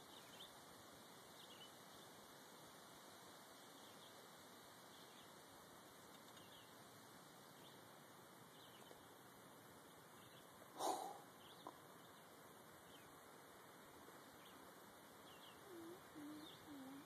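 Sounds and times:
faint click: 6.1 - 6.5
faint high bird chirps: 15.2 - 17.0.

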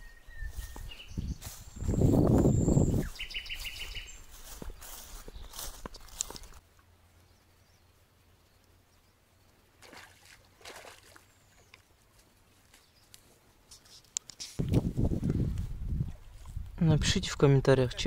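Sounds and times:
wind rumble on microphone: 0.0 - 5.8, 14.6 - 18.0.

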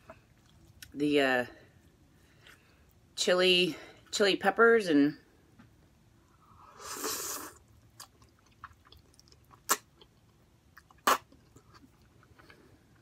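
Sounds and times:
chewing: 0.0 - 0.9, 7.8 - 13.0
slurping noodles: 6.7 - 7.6.

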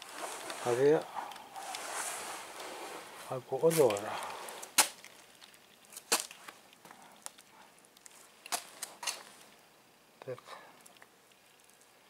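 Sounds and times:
cat crunching dry kibble: 3.6 - 9.7.

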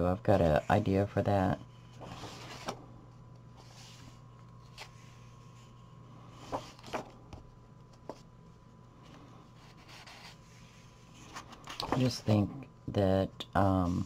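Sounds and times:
faint steady hum: 0.0 - 14.0
paper page rustling: 1.9 - 2.8, 3.6 - 5.7, 6.4 - 7.1, 9.2 - 12.3.

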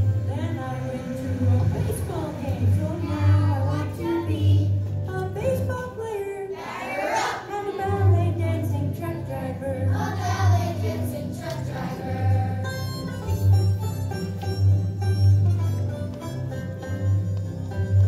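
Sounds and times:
music track with bass line: 7.9 - 18.0
children singing: 9.4 - 12.8.

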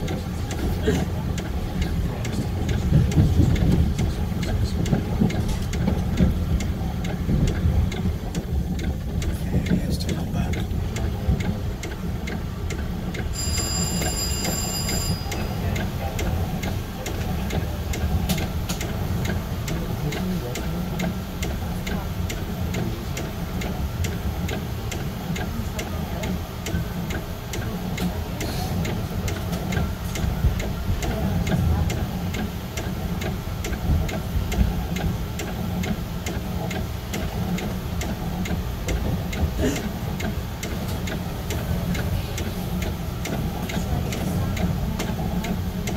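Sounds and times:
electric train rumbling: 0.0 - 45.9
regular ticking clicks: 0.0 - 45.9
brief high-pitched tone: 13.4 - 15.6.

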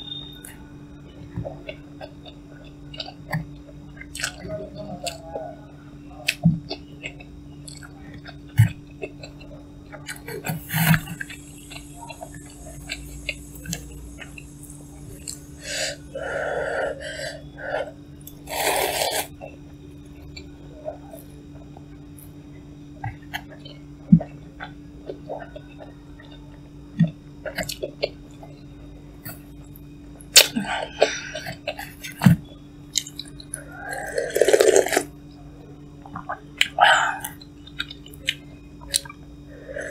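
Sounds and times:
low hum: 0.0 - 39.9
wet chewing and mouth clicks: 1.6 - 5.2, 6.2 - 15.5, 32.9 - 35.1, 36.1 - 39.2.

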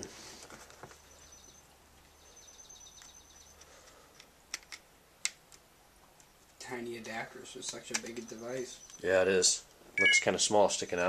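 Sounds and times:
faint high-pitched tone: 10.0 - 10.4.

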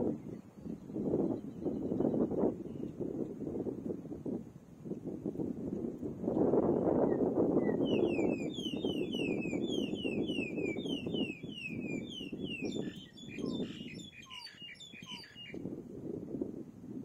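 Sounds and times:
wind rumble on microphone: 0.0 - 17.0
bird chicks whistling calls: 7.1 - 15.6.

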